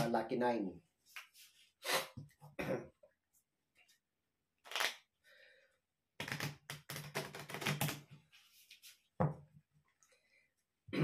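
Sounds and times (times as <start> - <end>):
playing cards shuffled by hand: 4.7 - 5.0, 6.2 - 8.0.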